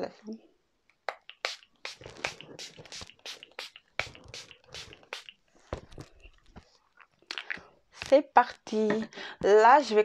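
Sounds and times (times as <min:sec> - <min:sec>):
rubbing and patting on skin: 0:01.1 - 0:06.7.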